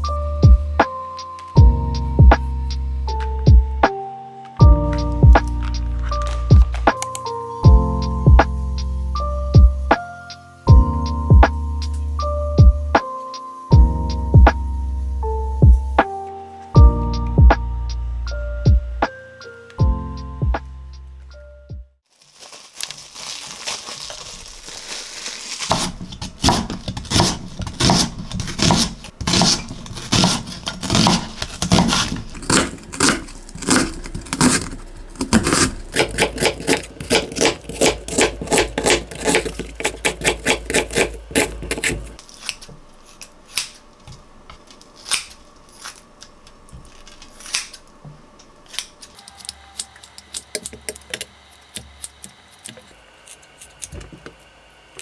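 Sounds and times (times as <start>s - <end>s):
scissors snipping: 5.0s - 7.3s, 25.7s - 43.9s, 44.8s - 46.0s, 46.9s - 47.8s
knife chopping on wooden board: 25.7s - 42.1s.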